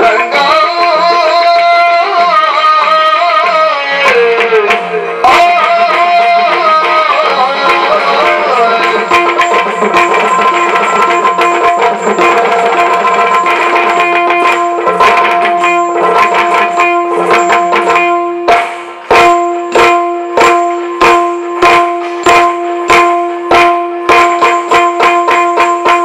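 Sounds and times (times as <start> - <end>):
drums struck with sticks: 4.1 - 26.0.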